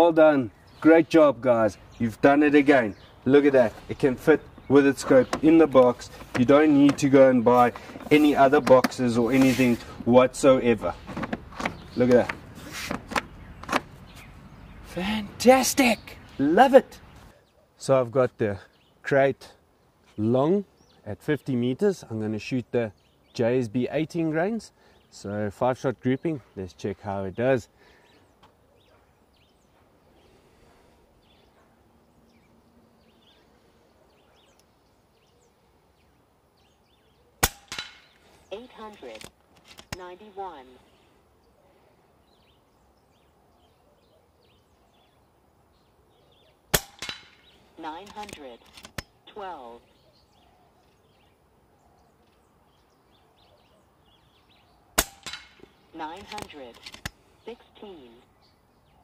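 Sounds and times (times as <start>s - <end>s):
birds chirping faintly: 0.0s - 59.0s
air rifle shot crack: 37.4s - 38.2s, 46.7s - 47.6s, 55.0s - 55.8s
pellet striking target: 37.4s - 38.2s, 46.7s - 47.5s, 55.0s - 55.8s.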